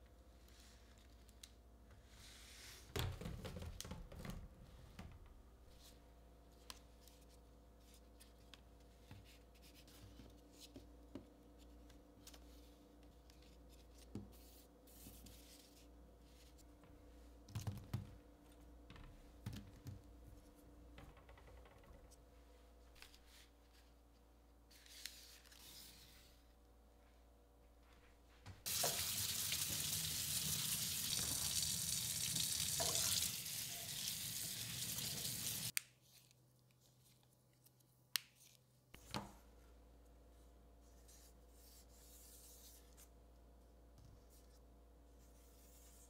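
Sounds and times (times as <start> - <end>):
tap water splashing in sink: 28.7 - 33.4.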